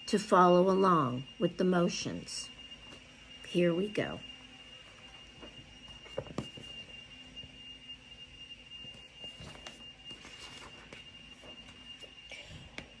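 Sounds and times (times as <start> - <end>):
faint high-pitched whine: 0.0 - 13.0
book handled and opened: 8.9 - 11.8.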